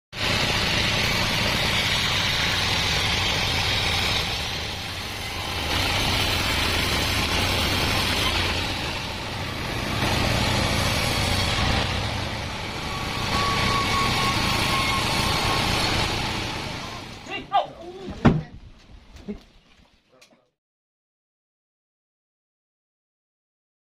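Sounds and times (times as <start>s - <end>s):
diesel engine drone: 0.1s - 17.8s.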